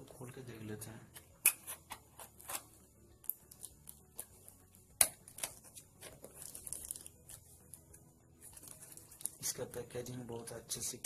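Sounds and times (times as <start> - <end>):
plastic parcel crinkling: 5.2 - 9.7.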